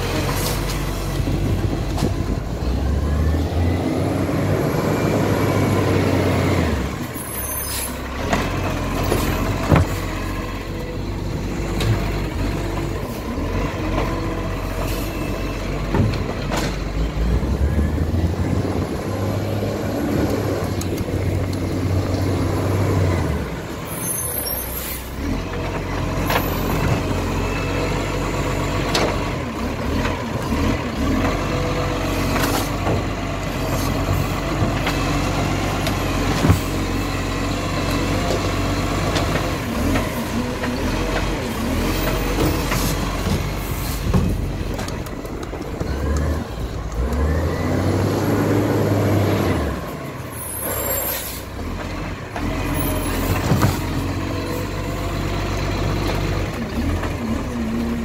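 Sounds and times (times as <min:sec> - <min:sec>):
garbage truck diesel engine: 0:00.0 - 0:58.0
truck arm lifting bin: 0:00.0 - 0:58.0.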